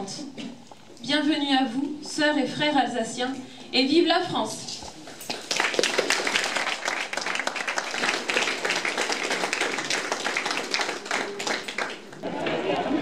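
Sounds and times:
audience applauding: 5.3 - 13.0.

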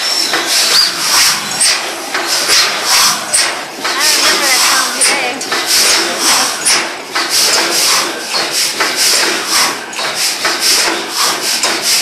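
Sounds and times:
compressor engine rhythmic hiss: 0.0 - 12.0.

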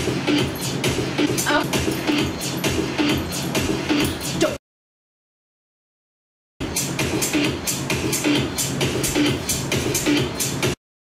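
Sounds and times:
electronic dance music: 0.0 - 4.6, 6.6 - 10.8.

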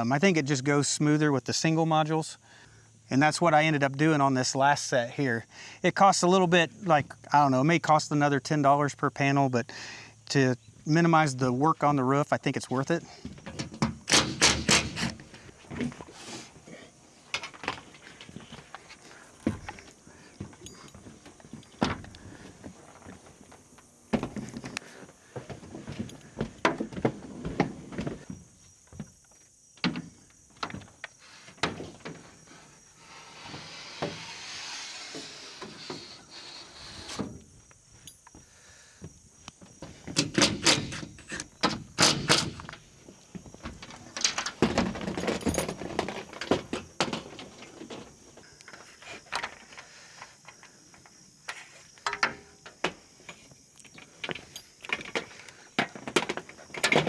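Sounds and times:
rushing scraping noise: 33.0 - 37.2
metal hardware knocking and clunking: 52.0 - 57.0.

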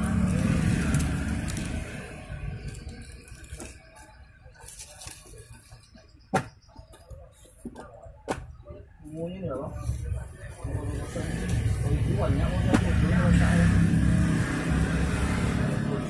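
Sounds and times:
cardboard parcel rustling: 0.0 - 6.1.

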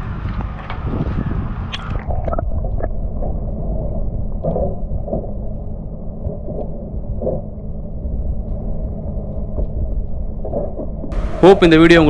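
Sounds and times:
muffled low rumble and hum: 0.0 - 12.0.

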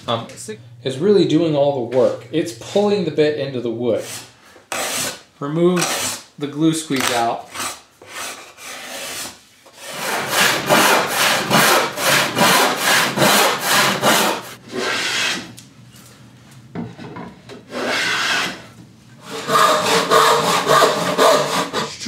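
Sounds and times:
hand tools cutting wood: 4.0 - 5.2, 5.8 - 6.2, 7.0 - 15.5, 17.7 - 22.0
hand-plane strokes on wood: 19.2 - 22.0.

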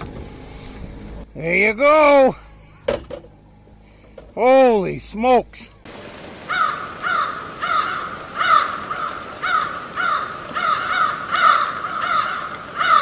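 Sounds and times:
crow cawing: 6.4 - 13.0.

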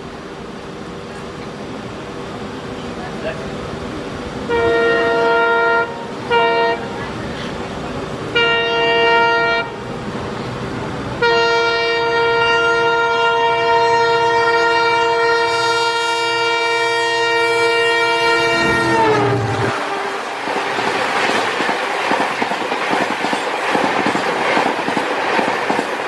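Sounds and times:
train rumble: 0.0 - 26.0
locomotive air horn: 4.5 - 6.9, 8.3 - 9.8, 11.2 - 20.7.

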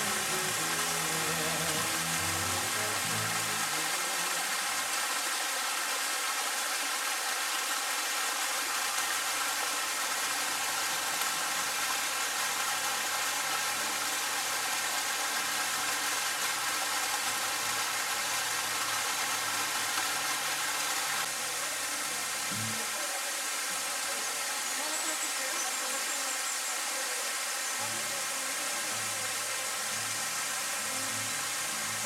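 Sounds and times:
running stream water: 0.0 - 32.0.

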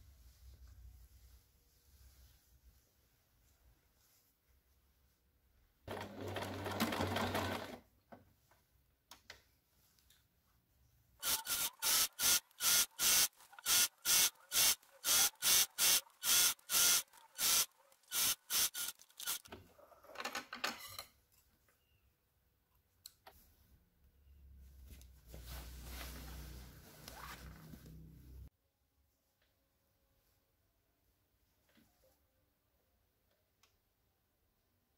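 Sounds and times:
sewing machine stitching: 5.9 - 7.8, 11.2 - 19.5.

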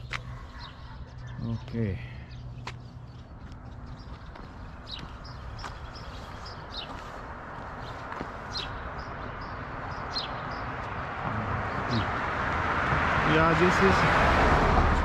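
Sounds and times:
small birds chirping: 0.0 - 12.3
vehicle approaching: 0.0 - 15.0
street traffic hiss: 4.7 - 15.0.

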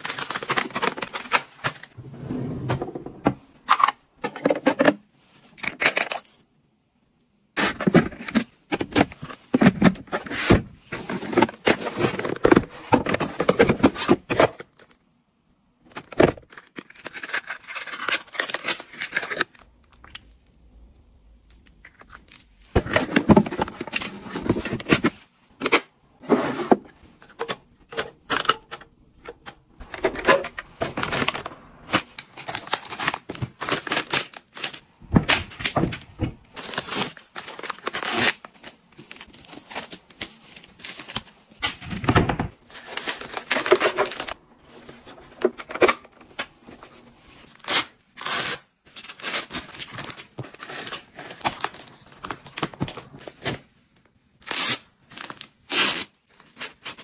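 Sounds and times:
plastic wrapping tearing: 54.4 - 57.0.

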